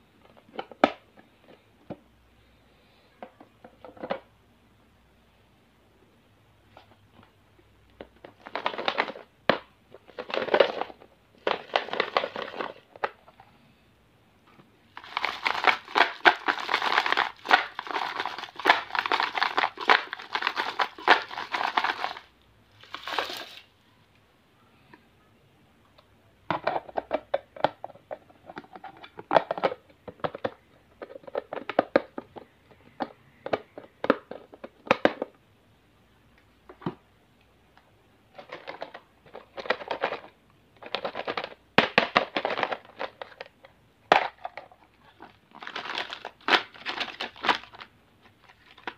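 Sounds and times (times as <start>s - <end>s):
sweets rattling on hard plastic: 8.0s - 13.4s, 14.9s - 23.7s, 26.5s - 35.3s, 38.3s - 48.9s
wrapped sweets rustling: 8.0s - 13.4s, 14.9s - 23.8s, 44.3s - 48.9s.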